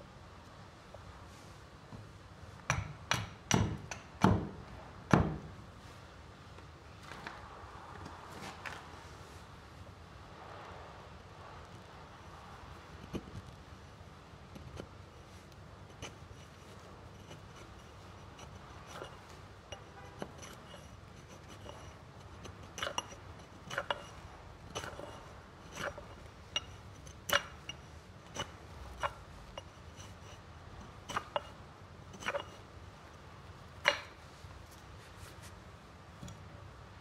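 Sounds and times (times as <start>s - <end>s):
hatchet chopping wood: 2.7s - 5.4s, 33.9s - 34.1s.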